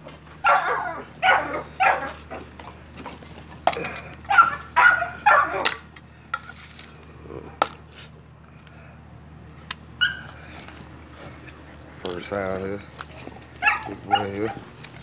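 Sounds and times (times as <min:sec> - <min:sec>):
dogs barking: 0:00.0 - 0:05.9, 0:10.0 - 0:12.3, 0:13.1 - 0:15.0.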